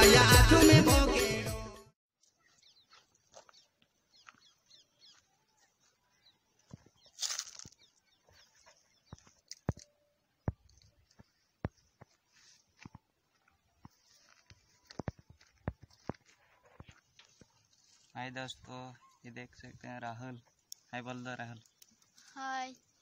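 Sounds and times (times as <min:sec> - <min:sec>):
background music: 0:00.0 - 0:01.9
small birds chirping: 0:02.2 - 0:23.0.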